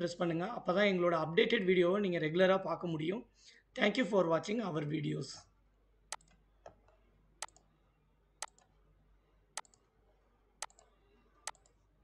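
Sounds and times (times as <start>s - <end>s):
computer mouse clicking: 10.6s - 10.9s, 11.5s - 11.8s.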